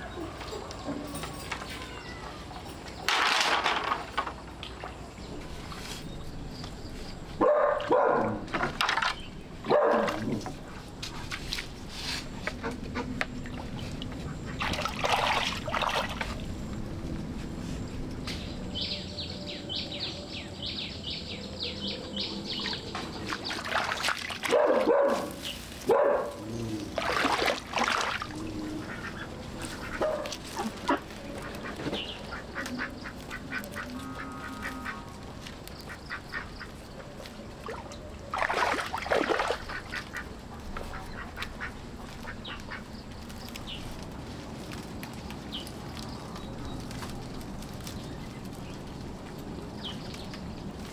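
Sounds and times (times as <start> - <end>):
poultry calling in rough bursts: 28.2 - 35.2, 35.8 - 36.8, 39.4 - 43.0.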